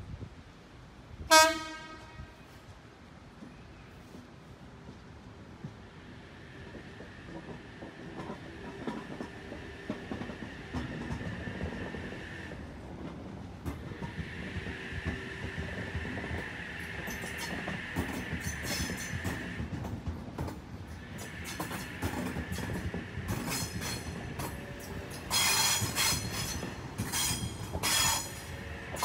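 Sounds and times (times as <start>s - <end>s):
train wheels clicking over rail joints: 5.6s - 29.0s
high-pitched train squeal: 14.4s - 19.6s, 21.0s - 29.0s.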